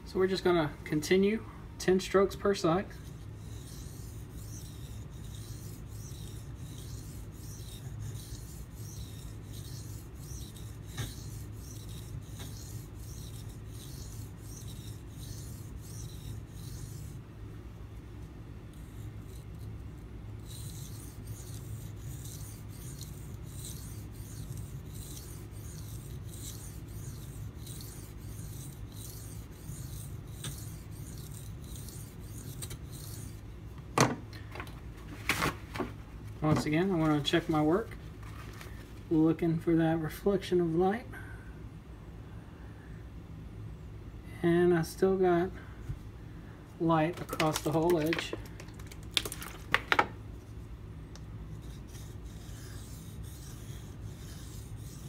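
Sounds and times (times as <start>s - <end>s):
steady low hum: 0.0s - 55.0s
knife stroking on sharpening stone: 3.0s - 17.2s, 18.7s - 19.7s, 20.4s - 33.4s, 51.6s - 55.0s.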